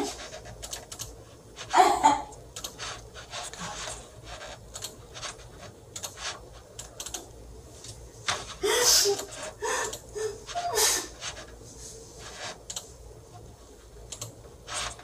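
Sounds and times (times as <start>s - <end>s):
woman crying and sniffling: 8.5s - 11.3s.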